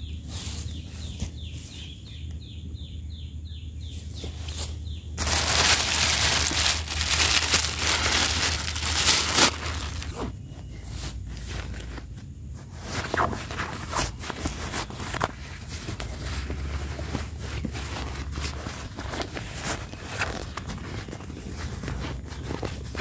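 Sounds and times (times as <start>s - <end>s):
backpack rustling: 5.2s - 10.3s
plastic bag crinkling: 5.2s - 10.3s.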